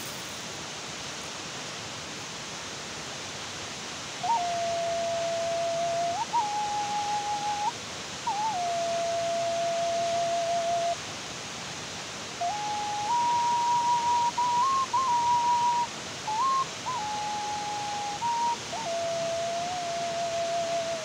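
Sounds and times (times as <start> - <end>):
steady hiss: 0.0 - 21.0
whistled melody: 4.2 - 11.0, 12.4 - 21.0.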